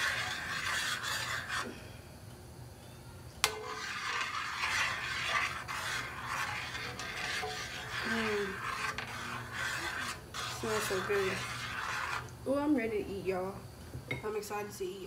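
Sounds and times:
spoon scraping a metal pot: 0.0 - 1.7, 3.4 - 12.3.

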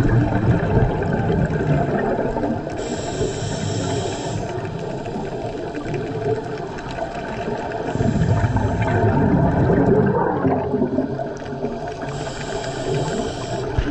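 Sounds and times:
exhaled bubbles gurgling underwater: 0.0 - 13.9
regulator inhalation hiss: 2.8 - 4.8, 12.0 - 13.9.

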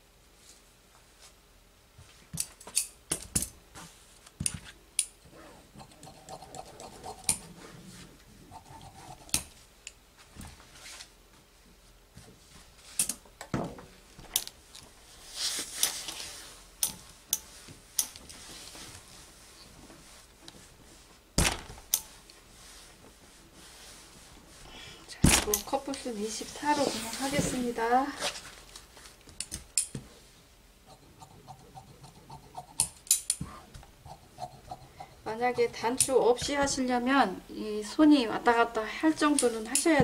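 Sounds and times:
fabric rustling: 15.0 - 24.7, 25.8 - 29.2.

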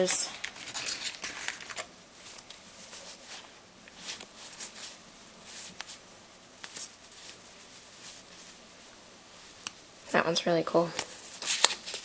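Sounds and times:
paper stickers rustling: 0.0 - 6.0.

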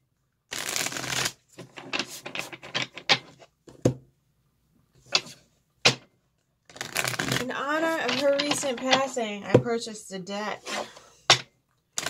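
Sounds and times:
cards clicking and rustling: 6.7 - 9.1
cards tapping on wooden table: 11.3 - 11.5.

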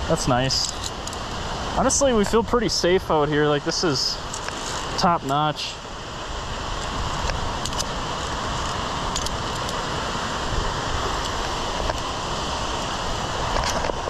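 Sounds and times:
steady rushing noise: 0.0 - 14.0
carabiners clicking on steel cable: 0.6 - 1.2, 7.6 - 7.9, 8.6 - 9.8.

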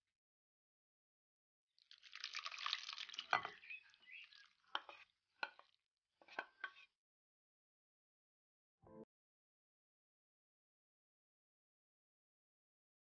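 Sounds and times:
juice splashing into bowl: 1.8 - 5.7.

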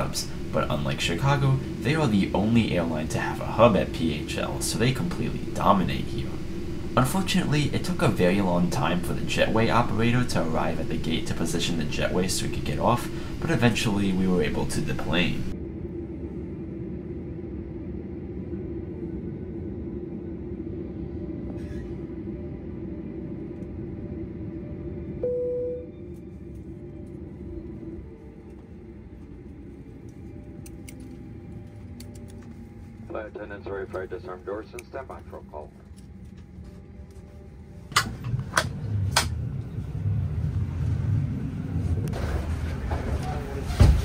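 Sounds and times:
loud steady tone: 0.0 - 16.2, 24.1 - 29.3
aircraft cabin ventilation hum: 0.0 - 44.0
steady low rumble: 0.0 - 44.0.

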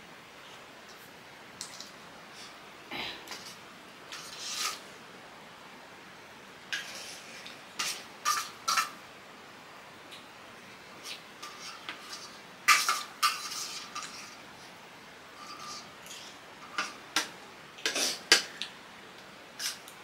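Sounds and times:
utensils scraping cookware: 3.3 - 4.9, 6.8 - 9.0, 11.1 - 14.4, 15.4 - 18.4.

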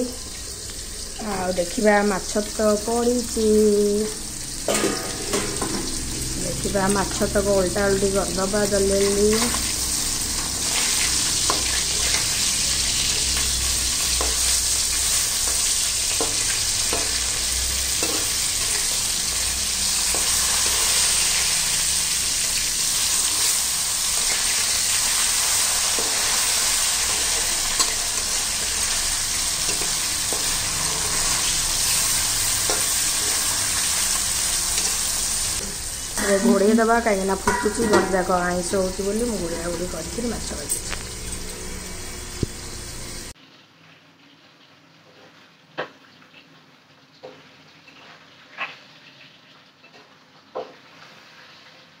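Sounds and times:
fish sizzling in oil: 0.0 - 52.0
spatula scraping and tapping pan: 4.7 - 6.1, 15.4 - 18.9, 37.4 - 38.4.

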